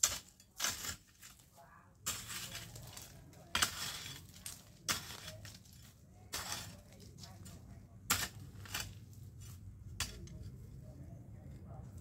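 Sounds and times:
hoe chopping into dry soil: 0:02.1 - 0:05.6, 0:06.3 - 0:06.8, 0:08.1 - 0:09.0.

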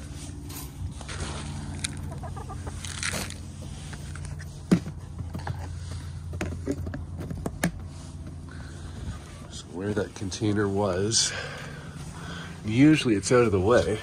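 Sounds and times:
steady low hum: 0:00.0 - 0:14.0
hens clucking softly: 0:01.5 - 0:03.5.

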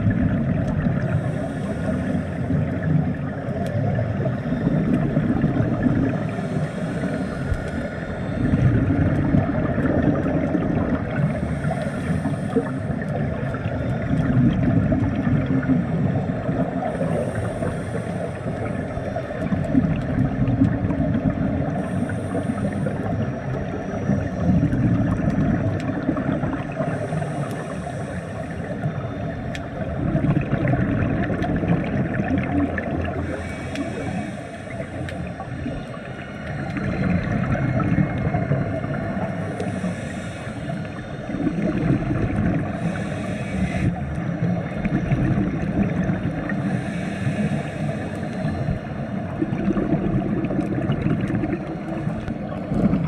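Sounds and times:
exhaled bubbles burbling: 0:00.0 - 0:39.8, 0:40.9 - 0:46.8, 0:47.5 - 0:53.0
regulator inhale hiss: 0:01.0 - 0:03.0, 0:06.1 - 0:14.3, 0:15.8 - 0:20.0, 0:21.6 - 0:25.2, 0:25.9 - 0:29.9, 0:32.2 - 0:45.0, 0:45.6 - 0:49.7.

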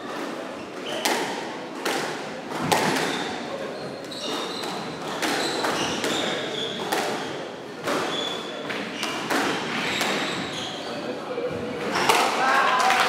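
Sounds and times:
squash ball struck and hitting walls: 0:00.8 - 0:03.5, 0:04.1 - 0:10.6
shoes squeaking on wooden floor: 0:02.8 - 0:12.1.

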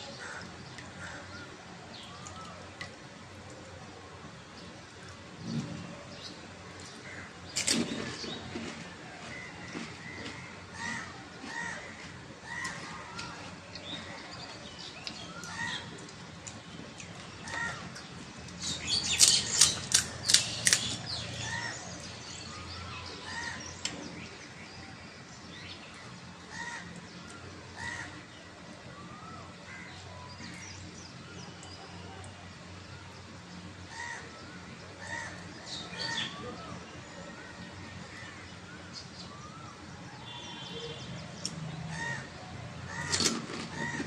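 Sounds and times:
crisp cracks and crunches: 0:15.0 - 0:21.3.

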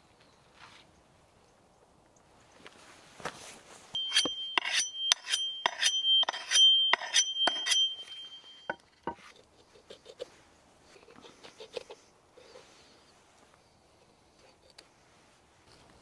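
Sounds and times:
high metallic ring: 0:04.0 - 0:09.2
steel blade scraping: 0:04.0 - 0:09.2.

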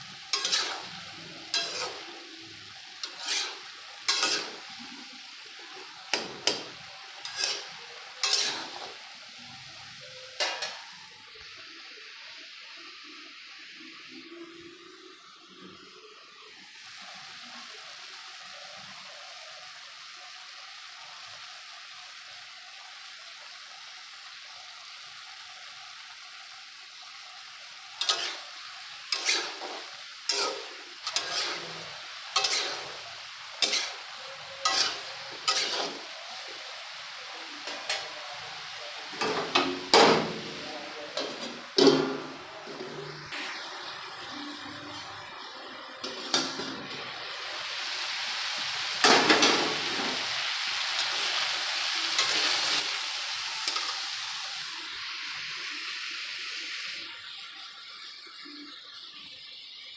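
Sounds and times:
vegetables sizzling in oil: 0:00.0 - 0:59.9
metal spoon scraping a pan: 0:00.1 - 0:02.3, 0:03.0 - 0:05.2, 0:06.1 - 0:09.0, 0:10.4 - 0:11.0, 0:28.0 - 0:36.7.

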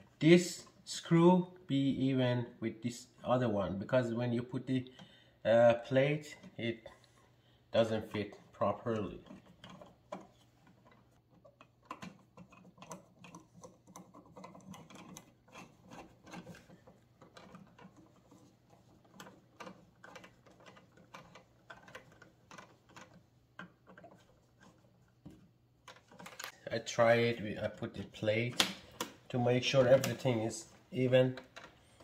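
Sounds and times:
screwdriver clicking and scraping: 0:08.0 - 0:26.6.

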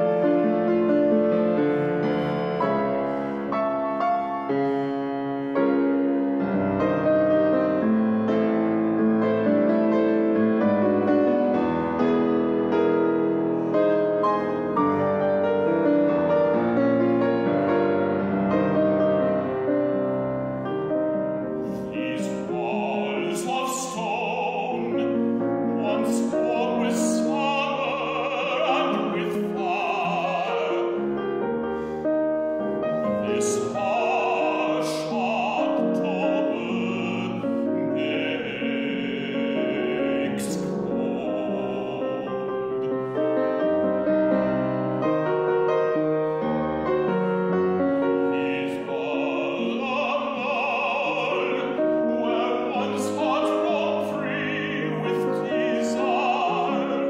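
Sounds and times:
piano playing: 0:00.0 - 0:57.0
male operatic singing: 0:21.8 - 0:31.5, 0:32.9 - 0:43.3, 0:48.0 - 0:57.0.

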